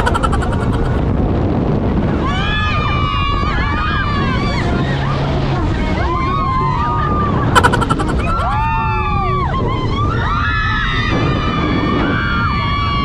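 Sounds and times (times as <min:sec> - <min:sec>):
boat engine: 0:00.0 - 0:01.4, 0:04.5 - 0:09.6
rushing water and wind: 0:00.0 - 0:09.6
people screaming: 0:05.9 - 0:13.0.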